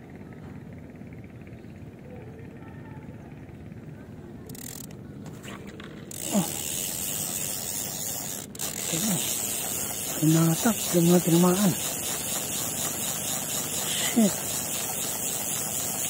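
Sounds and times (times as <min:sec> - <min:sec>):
person exclaiming: 0:06.2 - 0:06.6.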